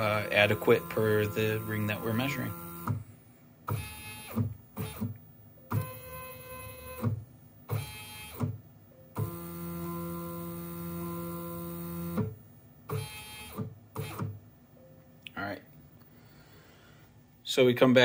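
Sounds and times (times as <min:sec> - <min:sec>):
stepper motors whining: 0:00.0 - 0:03.0.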